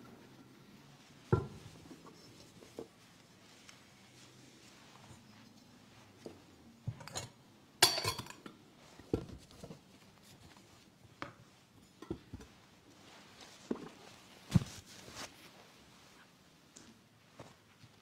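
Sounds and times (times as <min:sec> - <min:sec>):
metal vessels clinking: 0:06.9 - 0:08.5.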